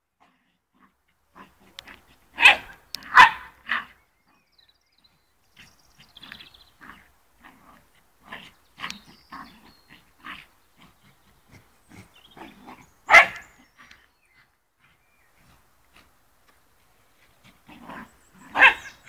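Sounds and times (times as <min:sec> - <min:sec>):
dog barking: 0:02.4 - 0:03.9, 0:13.1 - 0:13.5, 0:17.9 - 0:19.0.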